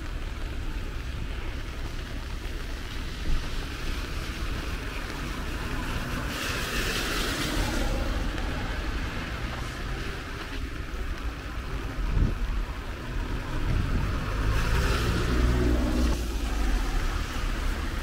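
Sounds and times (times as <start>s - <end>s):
traffic rumble with tyre hiss: 0.0s - 18.0s.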